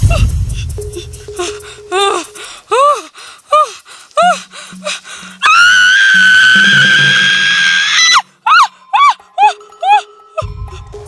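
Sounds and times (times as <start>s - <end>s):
background music: 0.0s - 11.0s
short rising and falling cries: 5.4s - 10.0s
woman screaming: 5.4s - 10.0s.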